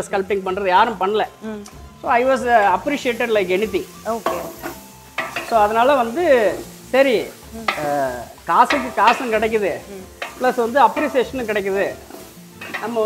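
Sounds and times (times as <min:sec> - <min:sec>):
masala sizzling in oil: 0:00.0 - 0:13.0.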